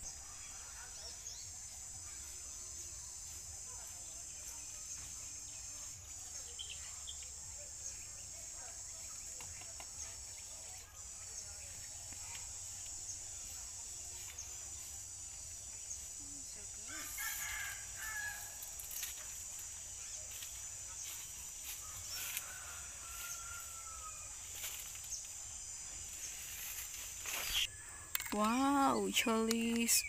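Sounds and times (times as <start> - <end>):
insects droning: 0.0 - 30.0
rooster crowing: 16.9 - 18.6, 22.0 - 24.4.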